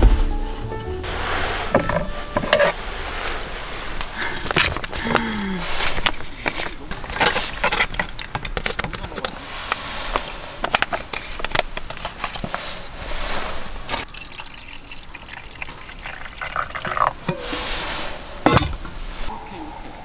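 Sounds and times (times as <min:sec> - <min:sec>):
pouch crinkling and clicking: 0:10.1 - 0:12.7
water pouring into metal mug: 0:14.0 - 0:17.6.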